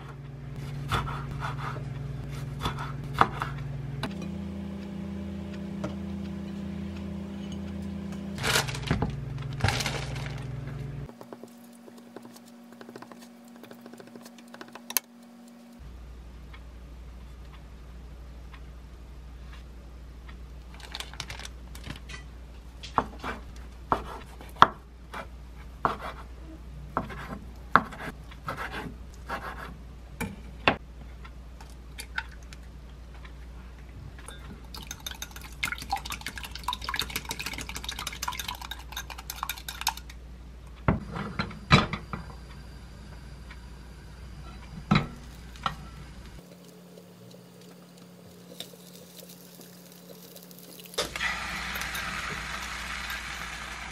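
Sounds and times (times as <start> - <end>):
egg beaten in a glass cup: 34.7 - 40.1.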